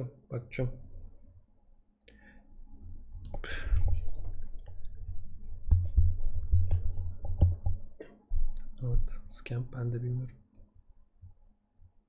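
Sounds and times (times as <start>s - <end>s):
small object clicking and bumping: 5.7s - 7.8s.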